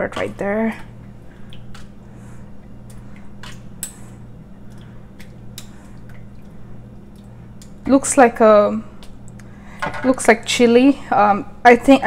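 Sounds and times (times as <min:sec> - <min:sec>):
steady low hum: 0:00.0 - 0:12.0
wet squishes of puree: 0:00.7 - 0:07.9.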